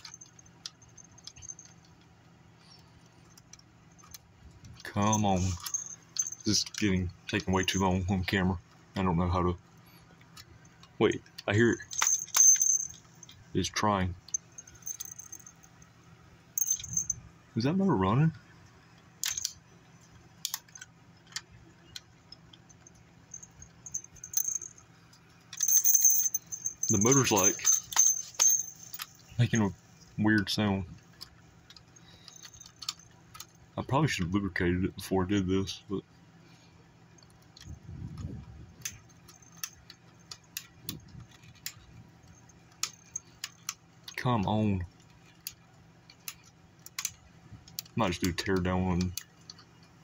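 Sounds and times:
small bells jingling: 0.0s - 2.0s, 4.8s - 8.4s, 11.1s - 13.5s, 14.2s - 15.8s, 16.6s - 17.3s, 22.7s - 30.0s
toy motor and gearbox clicking: 2.8s - 8.0s, 19.2s - 19.6s, 20.4s - 24.8s, 25.4s - 29.7s, 30.3s - 34.3s, 37.2s - 50.0s.

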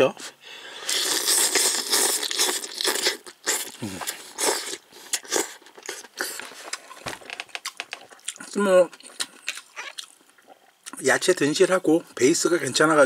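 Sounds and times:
person slurping and chewing: 0.7s - 7.0s, 9.0s - 10.7s.

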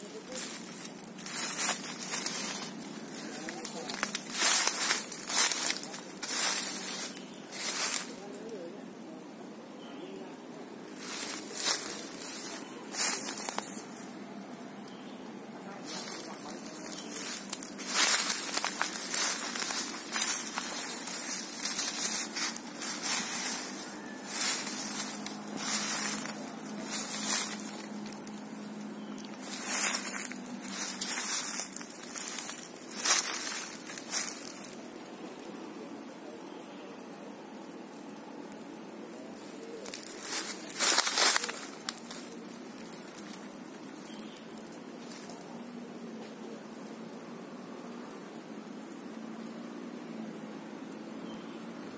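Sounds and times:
footsteps crunching dry leaves: 0.0s - 8.7s, 10.9s - 14.2s, 15.7s - 34.8s, 39.4s - 45.6s.

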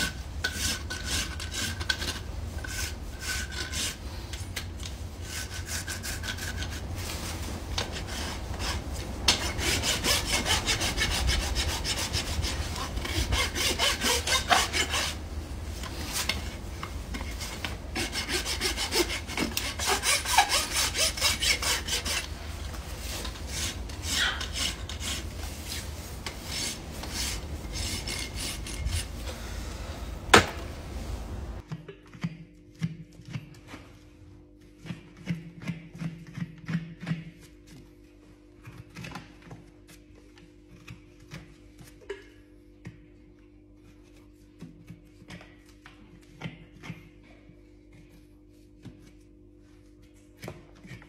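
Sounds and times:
rasp filing hoof: 7.8s - 15.2s, 17.2s - 29.2s.

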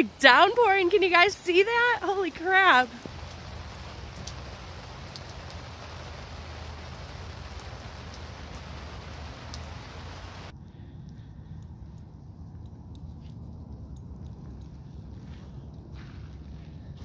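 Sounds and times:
heavy rain hissing: 0.0s - 10.5s
raindrop ticks: 0.0s - 15.8s.

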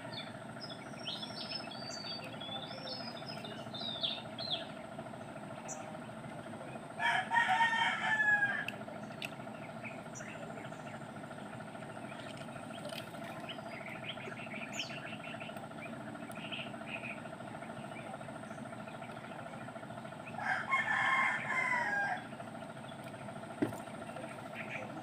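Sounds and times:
steady drone: 0.0s - 25.0s
rooster crowing: 7.0s - 8.8s, 20.4s - 22.4s.

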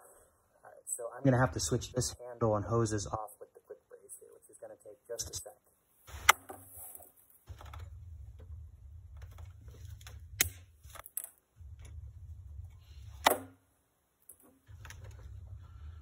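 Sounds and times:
low rumble: 11.6s - 13.1s.

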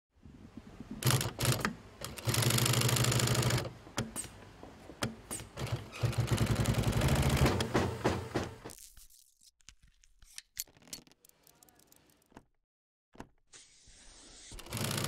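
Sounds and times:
sewing machine stitching: 1.0s - 3.7s, 5.3s - 8.2s, 14.6s - 15.0s.

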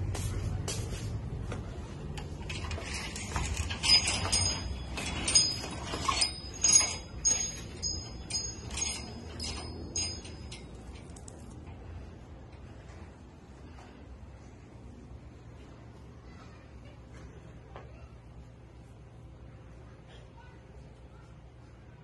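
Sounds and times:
light metallic clinks: 2.5s - 11.7s.

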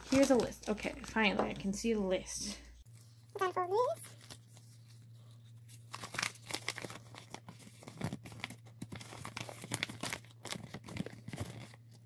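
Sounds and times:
paper crinkling: 2.8s - 12.0s.

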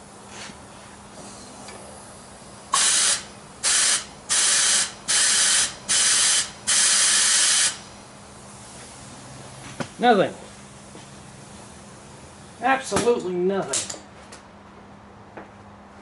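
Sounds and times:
compressed air hissing bursts: 1.2s - 9.2s.

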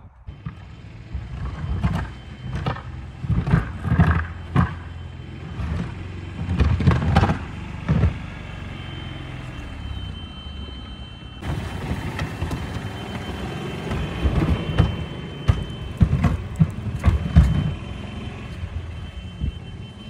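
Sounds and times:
golf cart running: 0.3s - 20.0s.

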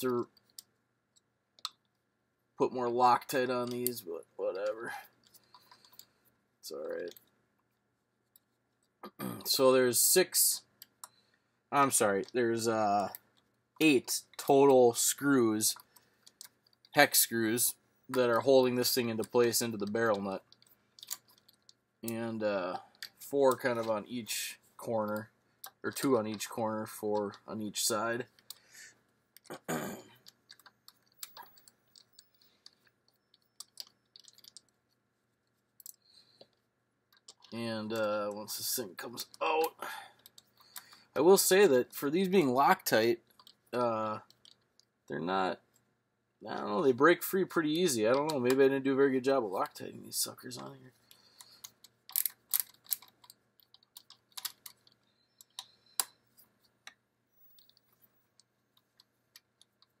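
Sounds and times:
hex key clicking on screws: 51.4s - 56.1s.

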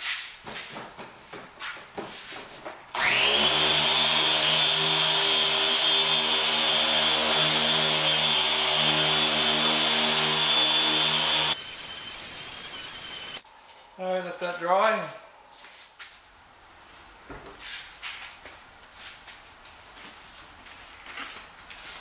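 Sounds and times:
electric polisher whining: 3.0s - 13.4s.

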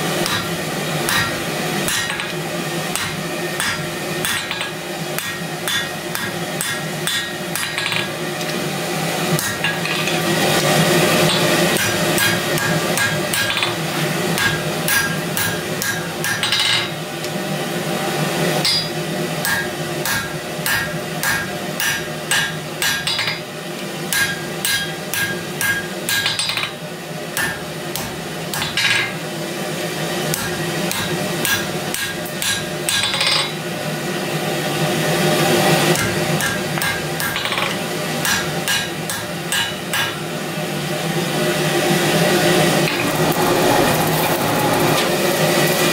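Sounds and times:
gas forge burner roaring: 0.0s - 45.9s
hammer striking hot steel: 0.2s - 8.5s, 9.4s - 13.8s, 14.4s - 16.9s, 18.6s - 23.4s, 24.1s - 26.8s, 27.4s - 29.2s, 30.3s - 33.6s, 35.9s - 40.2s.

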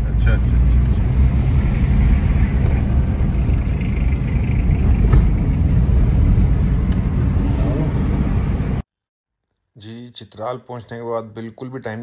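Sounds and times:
car engine and road rumble: 0.0s - 8.8s.

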